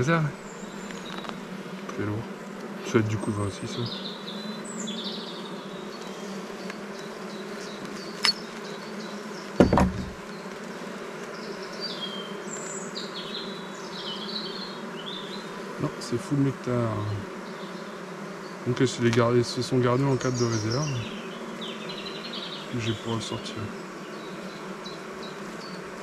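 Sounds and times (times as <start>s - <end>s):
honeybees buzzing: 0.0s - 26.0s
loud knock: 9.6s - 10.2s.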